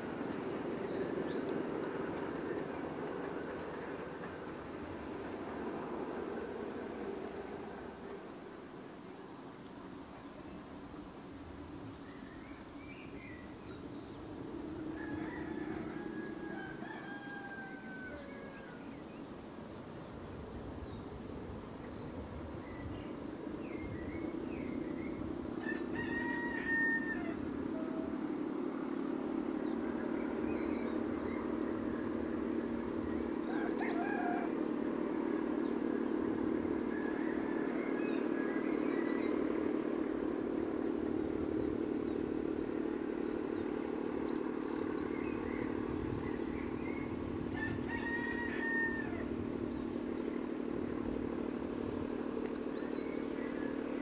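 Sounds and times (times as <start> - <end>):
diesel locomotive engine drone: 0.0 - 54.0.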